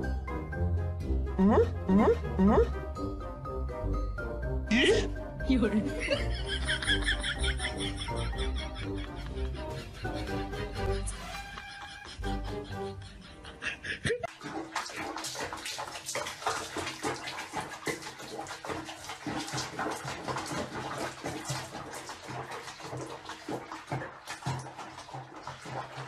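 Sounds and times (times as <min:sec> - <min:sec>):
water splashing in washbasin: 0:04.7 - 0:13.0, 0:14.0 - 0:26.0.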